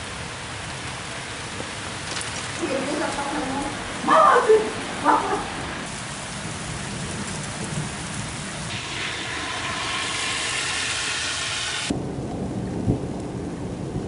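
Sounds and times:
heavy rain hiss: 0.0s - 13.8s.

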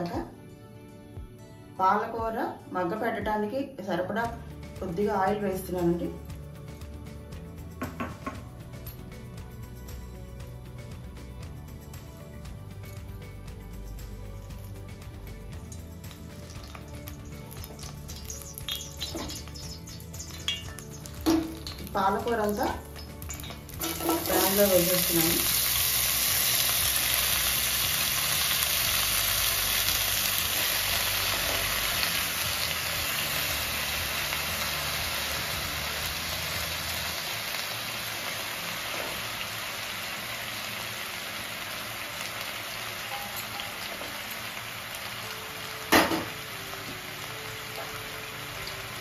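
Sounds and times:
spinach sizzling in hot oil: 14.4s - 49.0s.

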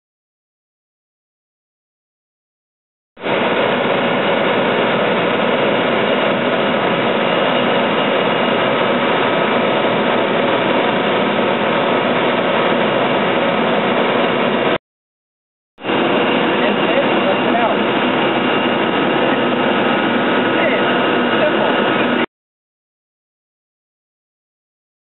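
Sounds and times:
turbine engine drone: 3.2s - 14.8s, 15.8s - 22.3s.

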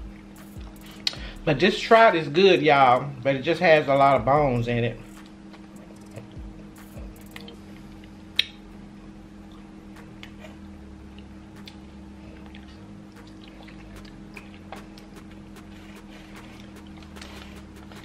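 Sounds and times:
low hum: 0.0s - 18.0s
chewing: 5.2s - 6.4s, 11.2s - 18.0s.

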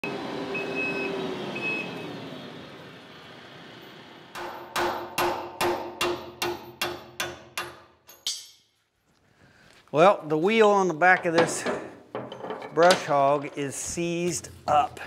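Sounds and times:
hammer striking metal: 4.4s - 8.7s.

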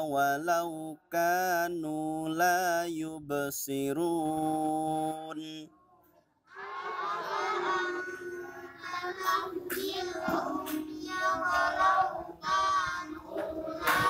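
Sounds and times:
child chanting melodic recitation: 6.5s - 14.0s.

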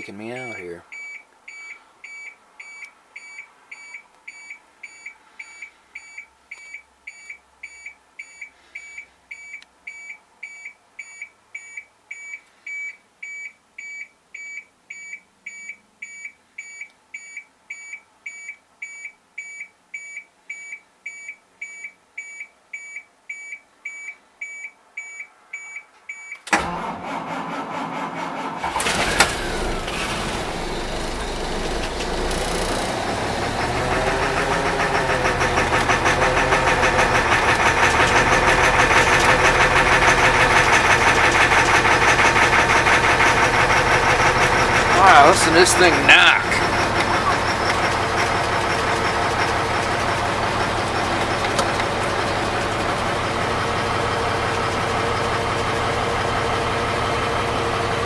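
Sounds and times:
starter motor cranking: 26.6s - 52.6s
diesel engine running loudly: 26.6s - 58.0s.

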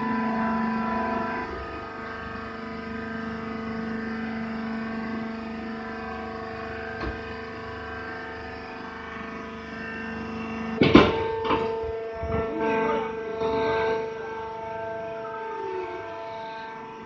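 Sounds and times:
hydraulic power unit humming: 0.0s - 17.0s.

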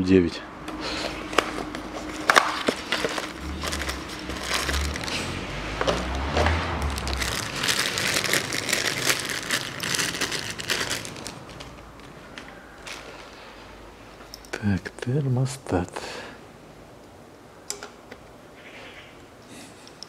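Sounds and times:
plastic bag crinkling: 0.8s - 13.4s
cardboard box being opened: 1.0s - 11.3s.

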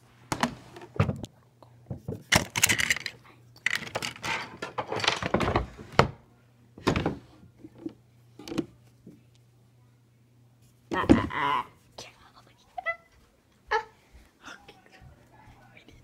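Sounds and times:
objects rattling and clattering: 1.9s - 6.1s.

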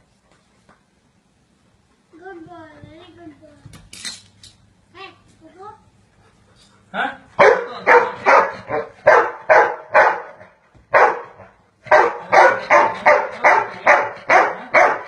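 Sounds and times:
dog barking: 7.4s - 15.0s.

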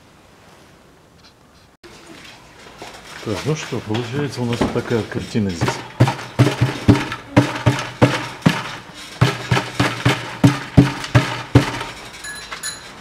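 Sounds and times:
muffler knocking hollowly: 5.5s - 12.0s.

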